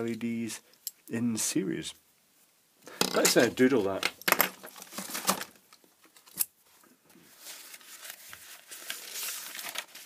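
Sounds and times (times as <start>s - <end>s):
paper rustling: 4.7s - 5.6s, 7.2s - 10.0s.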